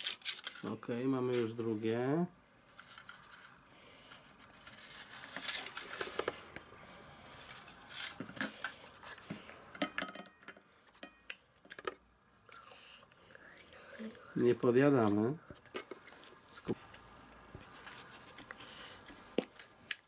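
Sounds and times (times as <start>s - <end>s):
chocolate shell crackling: 0.0s - 0.9s.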